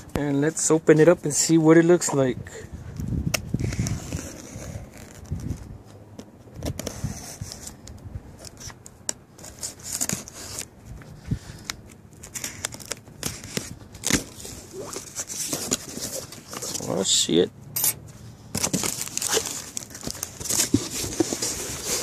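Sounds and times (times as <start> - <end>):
knife cutting tape and cardboard: 3.3 - 5.6, 11.6 - 17.0, 17.8 - 22.0
tape tearing: 3.3 - 10.7, 11.5 - 17.1, 17.8 - 22.0
cardboard scraping: 3.6 - 7.8, 9.4 - 17.2, 18.1 - 22.0.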